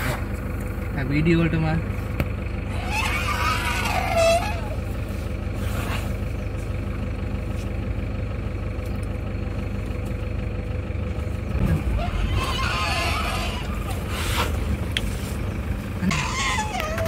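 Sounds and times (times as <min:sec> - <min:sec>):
vehicle engine idling: 0:00.0 - 0:17.0
elephant trumpeting: 0:02.7 - 0:05.0, 0:11.6 - 0:14.8, 0:15.9 - 0:17.0.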